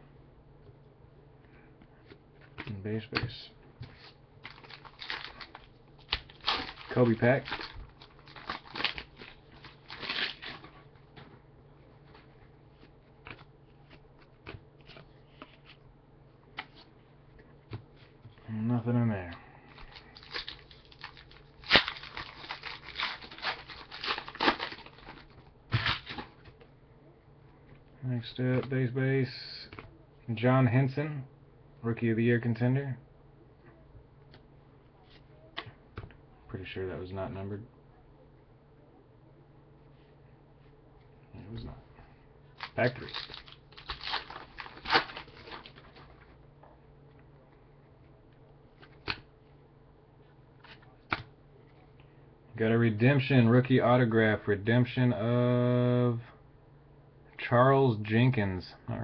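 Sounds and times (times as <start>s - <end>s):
wrapper ripping: 4.4s - 10.7s, 19.9s - 26.3s, 42.6s - 46.2s
wrapper crinkling: 4.4s - 10.8s, 19.8s - 26.4s, 42.6s - 46.3s.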